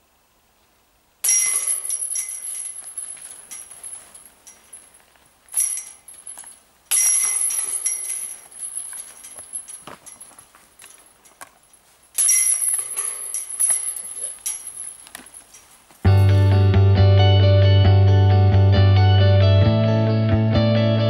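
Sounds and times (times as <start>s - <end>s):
discs hitting metal chains: 1.2s - 16.7s.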